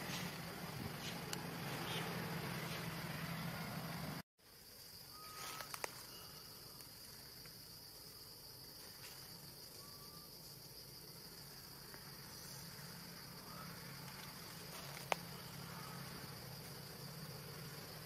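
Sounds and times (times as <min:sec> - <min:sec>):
insects droning: 0:00.0 - 0:18.0
faint whistled notes: 0:05.1 - 0:06.8, 0:09.7 - 0:10.3.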